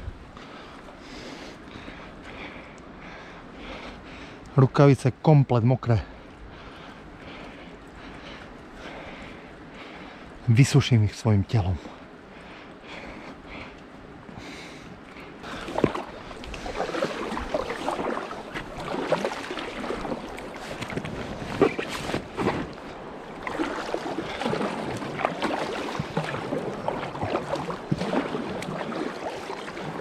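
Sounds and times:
water sloshing around boat: 0.0s - 30.0s
paddle splashes: 15.4s - 30.0s.

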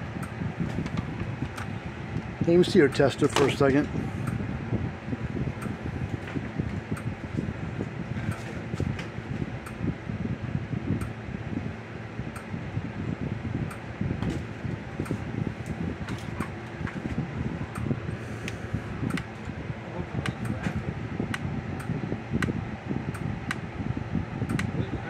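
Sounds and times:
fan-like hum: 0.0s - 25.0s
sharp clicks: 24.5s - 24.7s.

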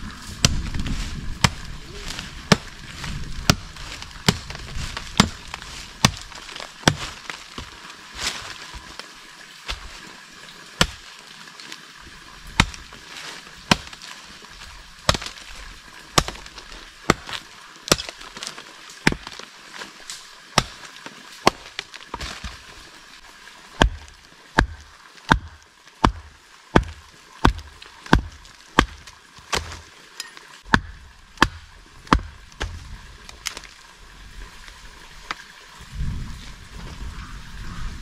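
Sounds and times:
low rumbling noise: 0.0s - 7.1s.

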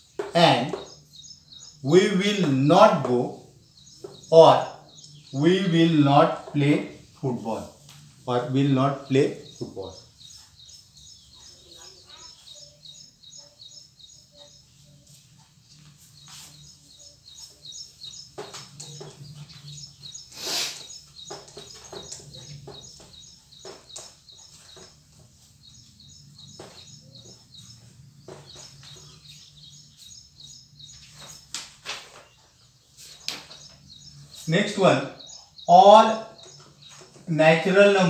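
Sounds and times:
small birds chirping: 0.0s - 38.0s.

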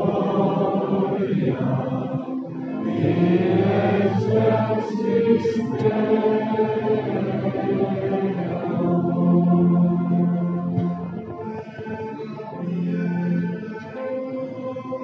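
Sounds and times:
group chanting: 0.0s - 9.8s.

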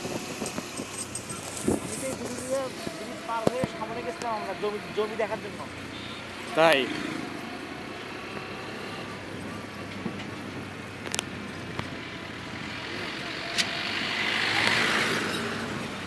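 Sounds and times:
truck passing: 0.0s - 16.0s
wind and road noise: 0.0s - 16.0s.

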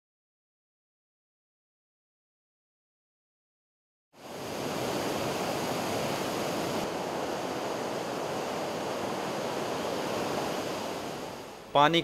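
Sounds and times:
floodwater rushing: 4.3s - 11.8s.

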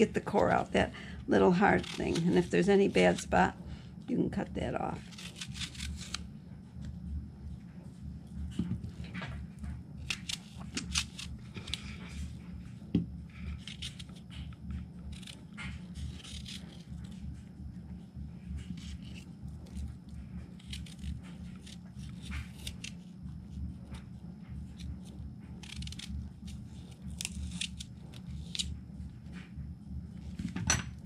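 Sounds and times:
low hum: 0.0s - 31.0s
knife cutting apple: 1.3s - 3.4s, 5.0s - 6.3s, 10.0s - 12.3s, 13.5s - 17.4s, 18.6s - 24.0s, 24.6s - 29.4s.

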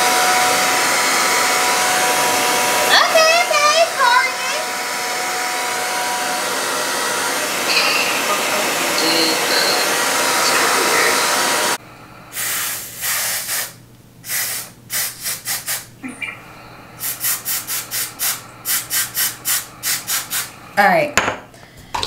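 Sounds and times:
hair dryer: 0.0s - 11.8s, 16.8s - 20.5s
hair spray bursts: 12.4s - 15.9s, 17.0s - 20.5s.

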